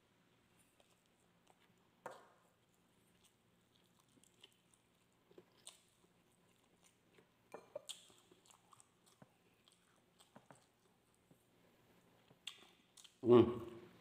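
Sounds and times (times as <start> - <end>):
close-up chewing: 0.3 - 13.2
wet mouth clicks and smacks: 12.4 - 13.2.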